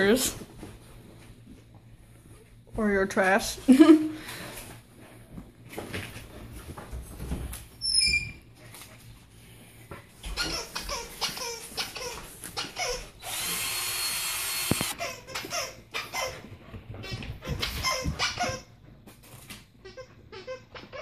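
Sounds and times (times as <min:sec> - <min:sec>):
dog chewing squeaky toy: 0:10.3 - 0:13.2, 0:14.9 - 0:16.4, 0:17.0 - 0:18.7
short squeaks of toy: 0:10.4 - 0:13.2.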